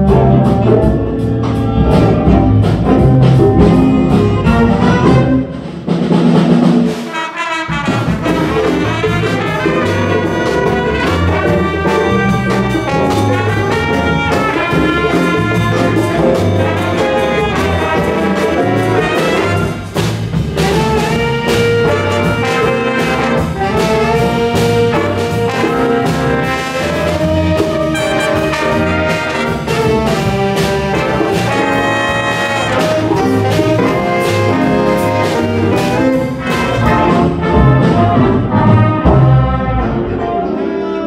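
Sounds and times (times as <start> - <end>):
trumpets: 0.0 - 5.7, 6.8 - 41.0
walking bass line: 0.0 - 6.6, 7.8 - 40.5
drums: 0.0 - 41.0
trombones: 0.0 - 41.0
saxophones: 20.6 - 41.0.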